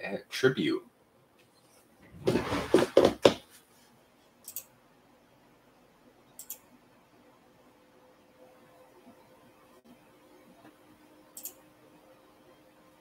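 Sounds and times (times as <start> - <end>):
handling noise: 2.0 - 3.6.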